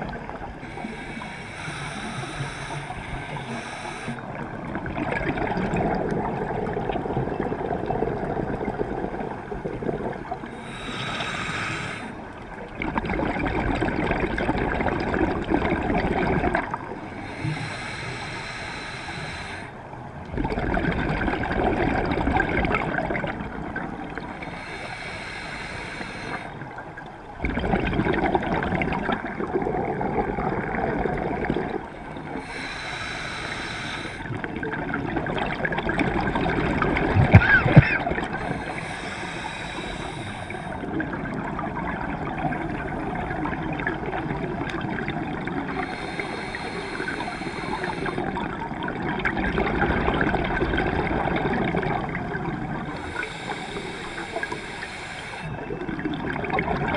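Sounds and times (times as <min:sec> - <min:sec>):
hiss of inhalation: 0:00.6 - 0:04.3, 0:10.6 - 0:12.2, 0:17.2 - 0:19.7, 0:24.4 - 0:26.6, 0:32.4 - 0:34.3, 0:38.4 - 0:40.8, 0:45.7 - 0:48.3, 0:53.0 - 0:55.6
bubbling exhale through regulator: 0:27.4 - 0:56.9.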